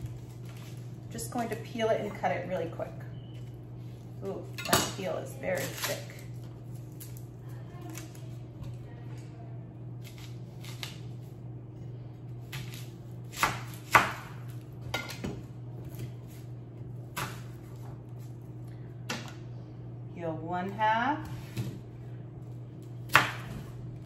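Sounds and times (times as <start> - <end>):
steady low hum: 0.0 - 24.0
knife chopping on wooden board: 12.5 - 14.3, 23.1 - 23.7.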